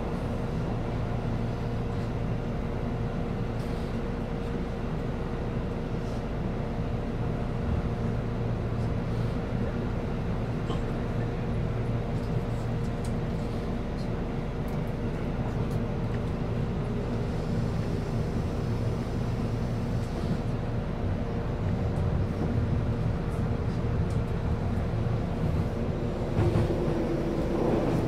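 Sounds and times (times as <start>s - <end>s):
train rumbling from inside: 0.0s - 28.0s.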